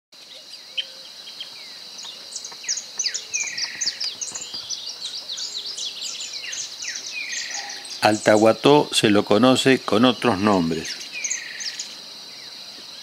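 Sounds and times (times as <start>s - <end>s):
birds chirping: 0.2s - 13.0s
high-pitched insect drone: 0.2s - 13.0s
buzzy falling bird call: 2.4s - 9.0s.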